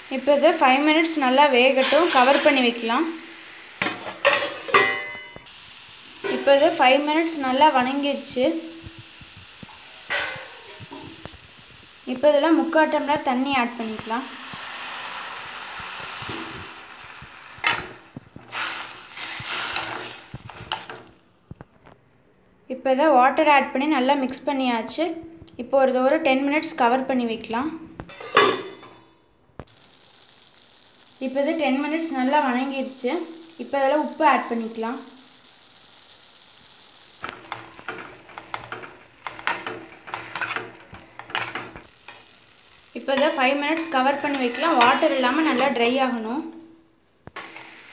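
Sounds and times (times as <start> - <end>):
beetroot sizzling in a pan: 0.0 - 21.2, 29.6 - 46.0, 47.3 - 47.9
metal spatula scraping a pan: 43.8 - 45.5.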